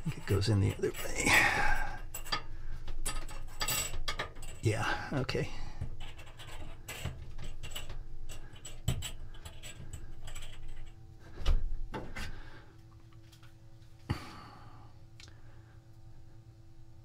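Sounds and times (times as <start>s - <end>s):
faint steady hum: 0.0s - 17.0s
metal bearing parts clicking: 6.0s - 11.0s.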